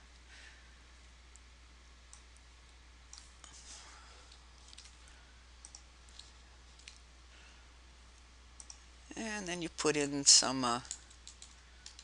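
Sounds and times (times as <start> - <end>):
low steady hum: 0.0 - 12.0
faint computer mouse clicks: 5.6 - 7.0, 8.6 - 8.8.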